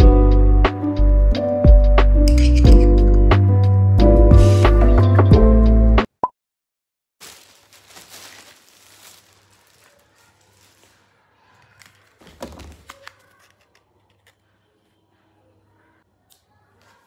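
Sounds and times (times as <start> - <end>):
hands rustling and crinkling items: 7.2 - 14.5.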